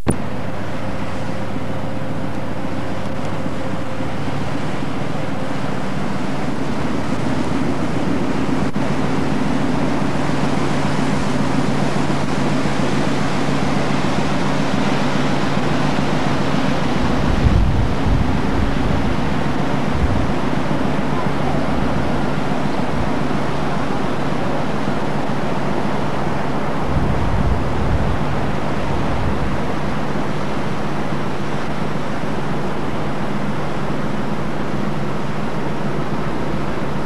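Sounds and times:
sea wash: 0:00.0 - 0:37.0
ship engines droning: 0:00.0 - 0:37.0
wind on microphone: 0:16.6 - 0:23.6, 0:26.4 - 0:30.3.

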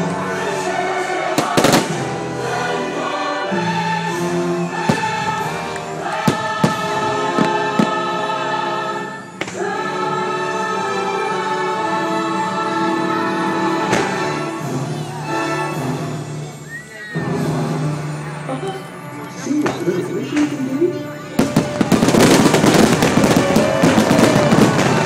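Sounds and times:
choir singing held notes: 0:00.0 - 0:25.0
orchestral music: 0:00.0 - 0:25.0
firework bangs: 0:01.3 - 0:02.2, 0:04.8 - 0:08.3, 0:21.4 - 0:25.0.

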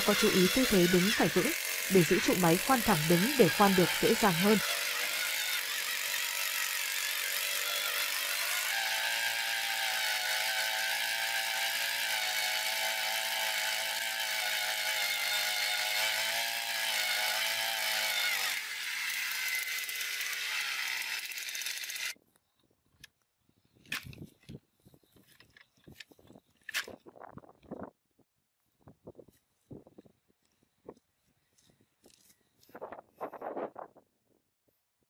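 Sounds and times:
two-stroke earth auger engine: 0:00.0 - 0:22.2.

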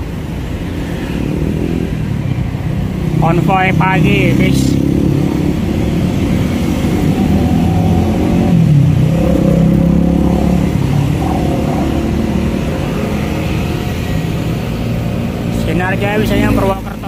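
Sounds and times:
bus diesel engines running: 0:00.0 - 0:17.0
motorcycles riding past: 0:00.0 - 0:17.0.

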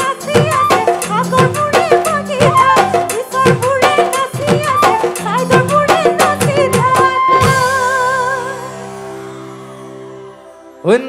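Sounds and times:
quick steady drum beat: 0:00.0 - 0:07.8.

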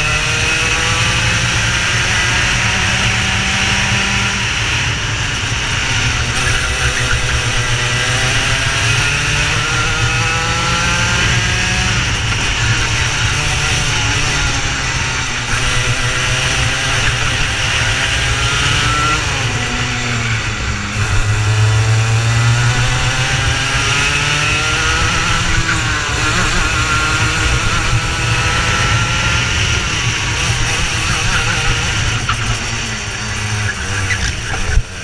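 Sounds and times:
racing kart engines: 0:00.0 - 0:35.0
wind: 0:00.0 - 0:35.0.

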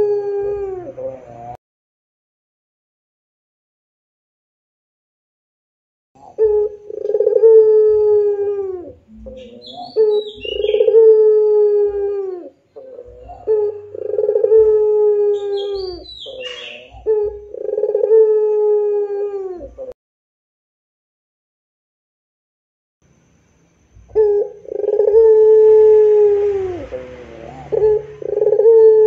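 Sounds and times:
dove cooing: 0:00.0 - 0:01.6, 0:06.2 - 0:20.0, 0:24.1 - 0:29.0.

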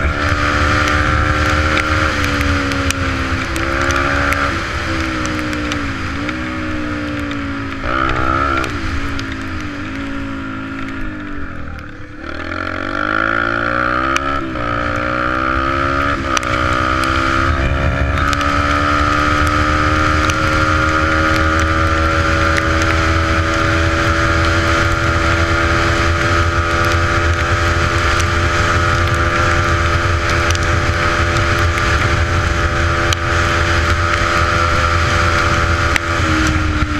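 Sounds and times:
dirt bike engine revving: 0:00.0 - 0:36.9
wind rumble on microphone: 0:00.0 - 0:36.9.

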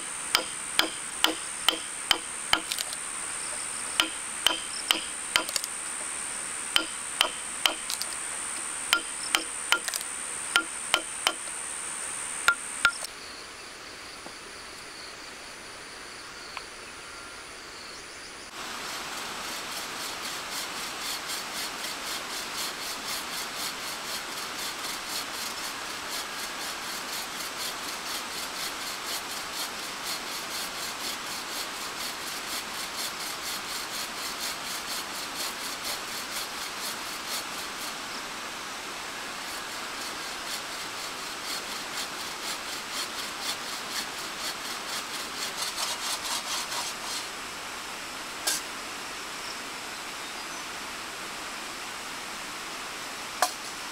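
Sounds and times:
hand tool rasping timber: 0:00.0 - 0:05.7, 0:06.7 - 0:08.2, 0:08.9 - 0:11.5, 0:19.3 - 0:38.0, 0:39.4 - 0:47.3
steady high whine: 0:00.0 - 0:13.1
chisel knocking into wood: 0:00.4 - 0:02.8, 0:04.0 - 0:05.6, 0:06.8 - 0:08.0, 0:10.6 - 0:11.4.

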